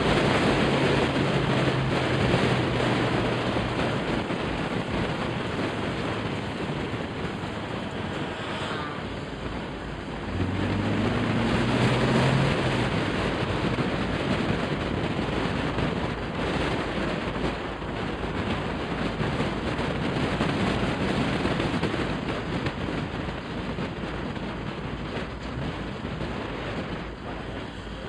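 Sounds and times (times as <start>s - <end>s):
low car engine note: 0.0s - 14.0s
road and wind noise: 0.0s - 28.0s.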